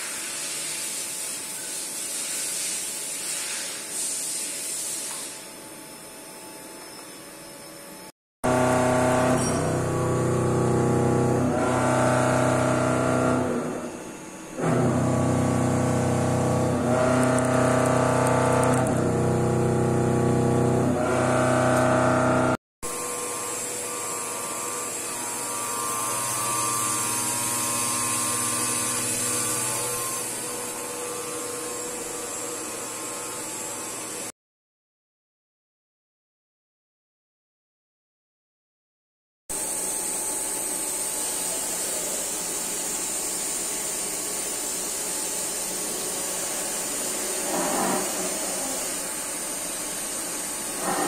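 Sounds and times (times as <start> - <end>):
machine hum with high hiss: 0.0 - 34.3, 39.6 - 51.0
milling machine multi-tone whine: 5.4 - 34.3, 39.5 - 51.0.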